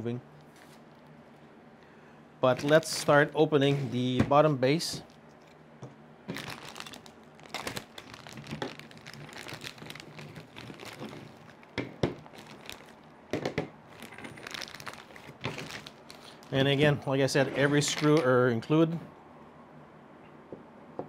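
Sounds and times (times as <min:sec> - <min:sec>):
plastic bags crinkling: 0:06.3 - 0:17.0.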